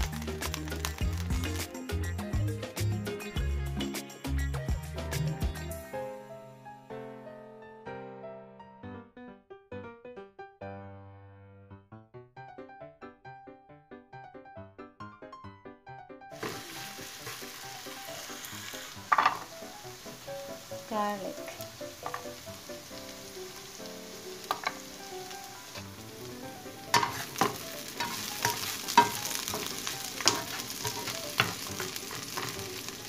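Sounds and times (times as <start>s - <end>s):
onion sizzling in hot oil: 0.0s - 2.4s, 16.4s - 33.0s
spatula scraping and knocking pan: 16.4s - 17.6s, 19.0s - 19.5s, 22.0s - 22.4s, 24.4s - 26.0s, 26.7s - 33.0s.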